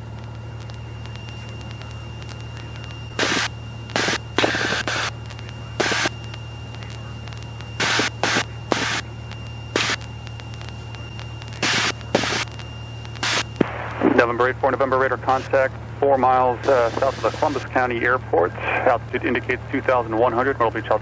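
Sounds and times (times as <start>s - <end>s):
aircraft engine droning: 0.0s - 21.0s
radio static crackles: 0.0s - 21.0s.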